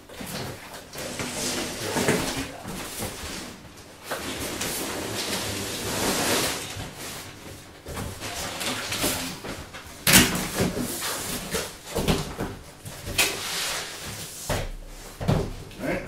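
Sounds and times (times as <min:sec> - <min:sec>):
cardboard scraping and rustling: 0:00.2 - 0:09.7.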